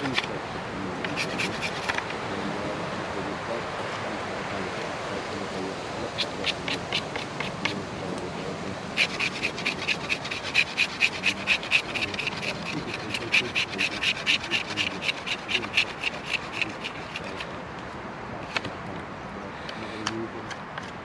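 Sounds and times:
knife shaving wooden stick: 1.0s - 2.0s, 6.2s - 7.7s, 9.0s - 17.5s.

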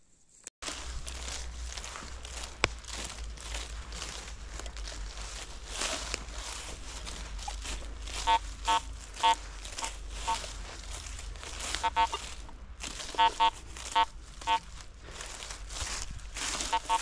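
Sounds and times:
footsteps through dry leaves: 0.3s - 17.0s
metal detector beeps: 8.2s - 10.5s, 11.8s - 12.2s, 13.1s - 14.6s, 16.7s - 17.0s.

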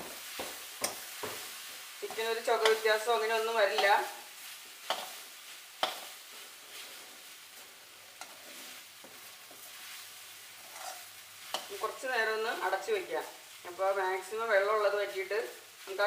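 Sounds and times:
chicken sizzling in a pan: 0.0s - 16.0s
metal spatula scraping a pan: 0.8s - 12.1s.

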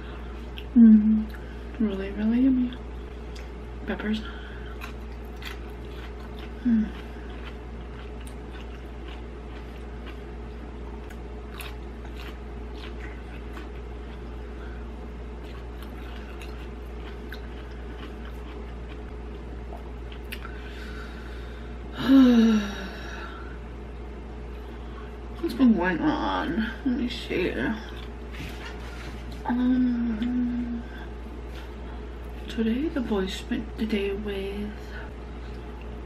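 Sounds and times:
steady low hum: 0.0s - 36.0s
person chewing: 0.1s - 1.5s, 4.5s - 20.7s
person humming mm: 0.7s - 1.4s, 6.6s - 7.1s, 22.0s - 23.3s, 29.4s - 31.1s.

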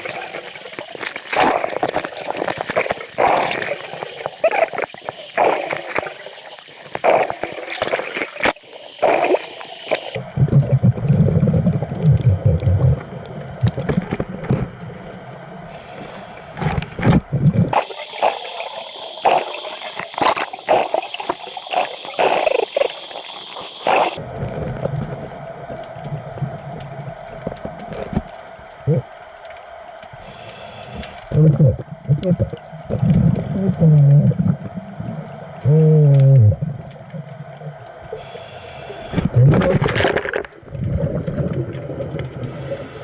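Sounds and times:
bubbles gurgling: 0.0s - 15.2s, 16.4s - 27.2s, 31.3s - 43.0s
diver breathing underwater: 15.7s - 24.2s, 30.2s - 31.3s, 38.1s - 39.4s, 42.4s - 43.0s.

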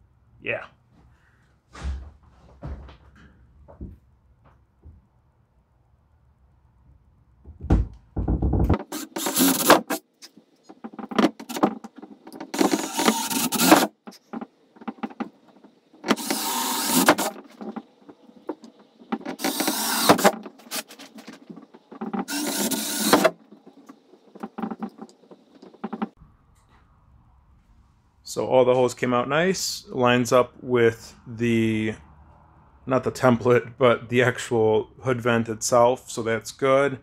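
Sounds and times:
drill cutting through sheet metal: 8.8s - 10.0s, 12.5s - 13.9s, 16.1s - 17.4s, 19.4s - 20.9s, 22.3s - 23.3s.

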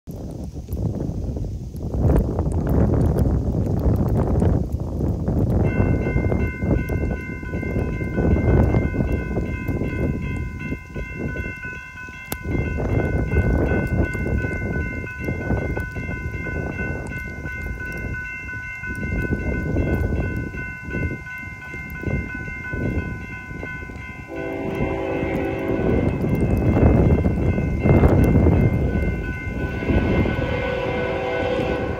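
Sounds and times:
crossing signal bells clanging: 5.5s - 31.9s
locomotive air horn: 24.3s - 26.2s, 29.5s - 31.9s.

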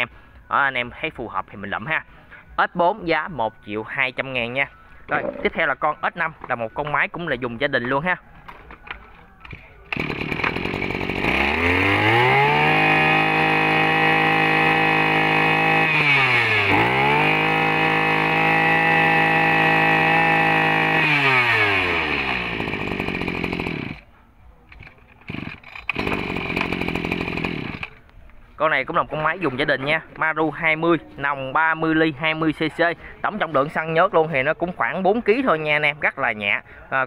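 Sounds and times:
brush cutter engine revving: 9.8s - 24.0s, 24.8s - 28.0s.

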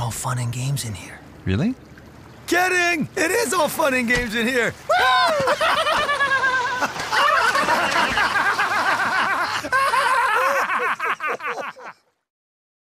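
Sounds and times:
people laughing: 4.9s - 12.0s.

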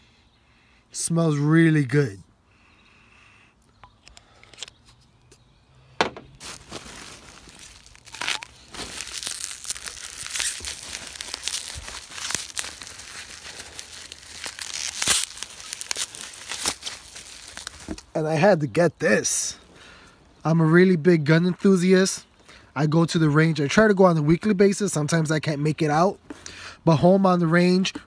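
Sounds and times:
bubble wrap crackles: 6.3s - 18.2s
bubble wrap crinkling and rustling: 6.3s - 18.2s.

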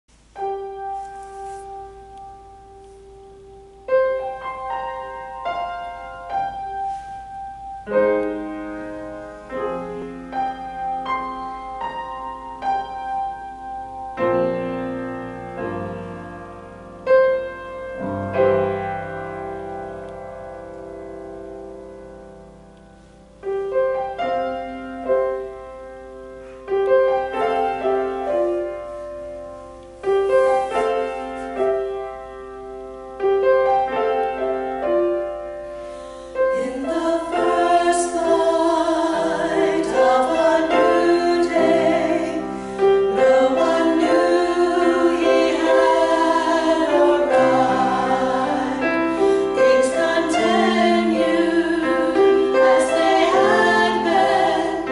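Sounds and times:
piano playing slow notes and chords: 0.1s - 54.9s.

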